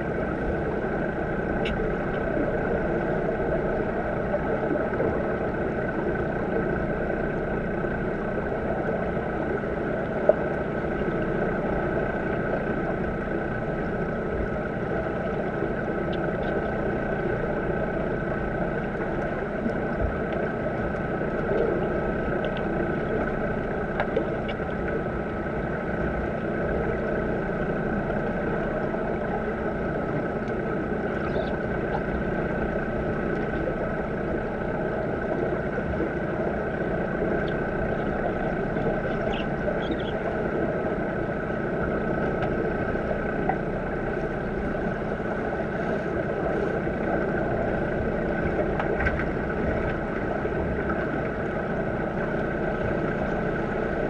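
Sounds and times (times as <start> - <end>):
faint steady hum: 0.0 - 54.0
underwater rumbling wash: 0.0 - 54.0
faint ticks: 1.6 - 2.2, 18.8 - 22.8, 30.4 - 32.2.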